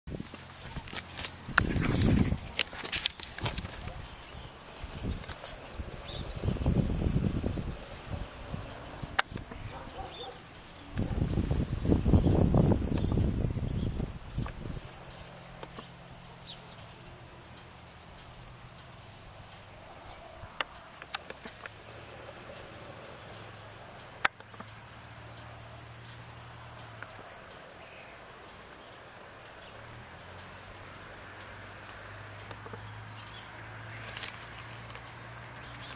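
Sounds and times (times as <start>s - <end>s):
insects chirring: 0.1s - 35.9s
sharp clicks: 9.1s - 9.6s, 24.2s - 24.8s.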